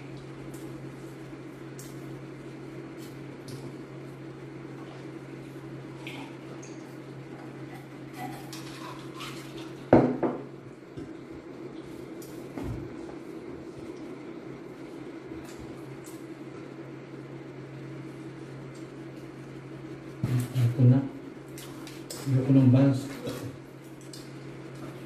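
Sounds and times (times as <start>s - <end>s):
steady low hum: 0.0s - 25.0s
small clicks of eating: 0.1s - 0.8s, 1.6s - 2.2s, 3.0s - 3.8s, 15.4s - 16.4s, 18.6s - 19.3s, 21.5s - 22.4s, 23.2s - 25.0s.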